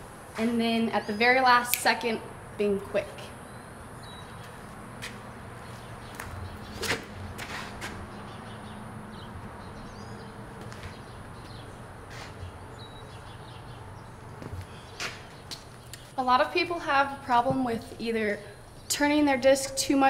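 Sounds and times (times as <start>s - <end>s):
outdoor background noise: 0.0s - 20.0s
footsteps on concrete: 4.2s - 8.3s, 10.5s - 13.2s, 14.3s - 16.2s.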